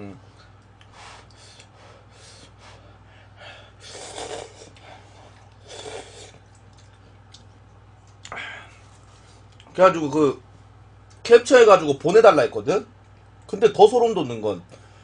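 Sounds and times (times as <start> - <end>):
person slurping noodles: 3.8 - 4.8, 5.6 - 6.4.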